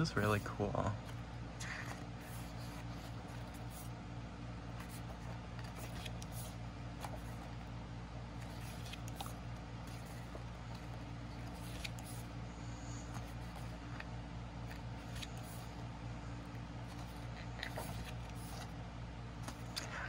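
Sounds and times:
steady low hum: 0.0 - 20.0
pages turning: 4.7 - 7.6, 8.4 - 12.3, 14.6 - 15.8, 16.8 - 18.8, 19.4 - 19.9.

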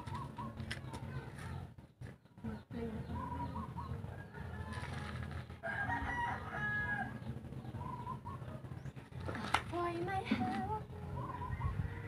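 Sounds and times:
rooster crowing: 4.2 - 7.3.

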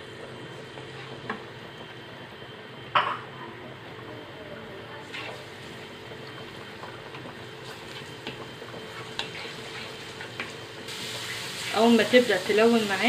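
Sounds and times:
garlic sizzling in pan: 5.0 - 13.0
spatula scraping pan: 7.6 - 10.6.

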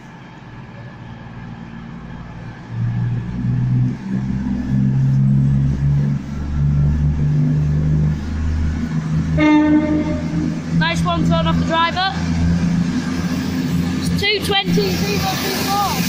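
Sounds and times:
diesel train engine drone: 0.0 - 16.0.

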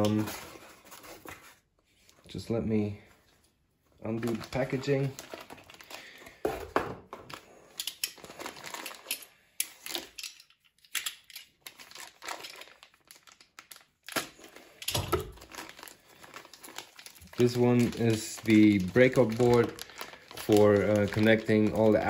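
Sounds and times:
plastic bag crinkling: 4.0 - 10.3, 11.2 - 22.0.

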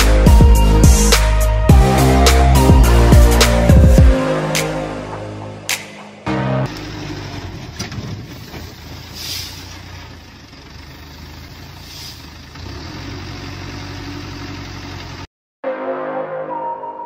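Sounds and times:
truck engine running at low revs: 6.3 - 15.3.

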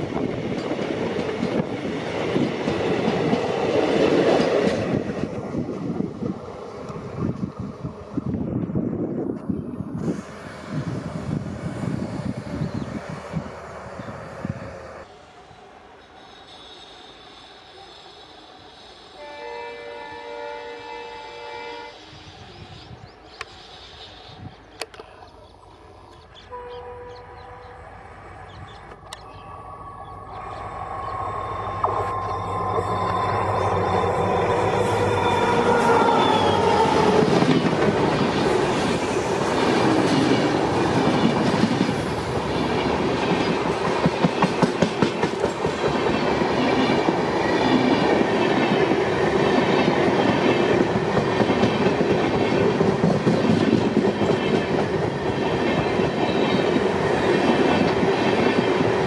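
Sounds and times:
train wheels clickety-clack: 0.0 - 7.5, 34.8 - 59.0
locomotive horn: 19.2 - 22.0, 26.5 - 28.2, 31.4 - 37.4.

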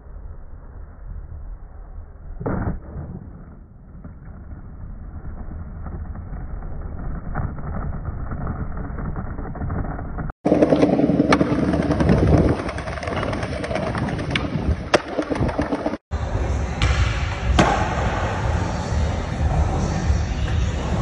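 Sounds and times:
skateboard wheels rolling on pavement: 4.8 - 16.0.

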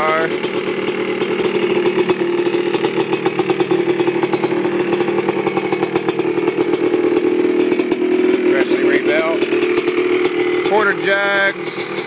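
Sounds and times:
two-stroke engine idling: 0.0 - 12.0.

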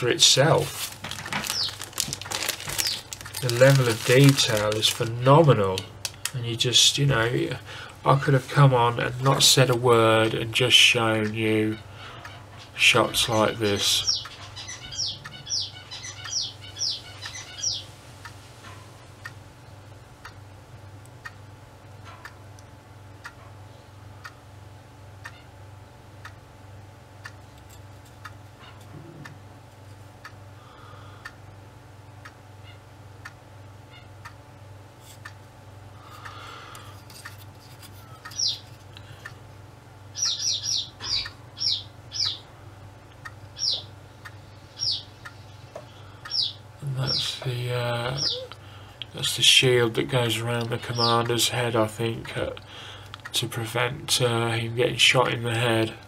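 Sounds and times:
steady low hum: 0.0 - 56.0
small bird chirping: 1.5 - 1.9, 2.7 - 3.1, 13.8 - 17.9, 38.2 - 38.7, 40.1 - 42.5, 43.5 - 47.4, 48.1 - 48.6.

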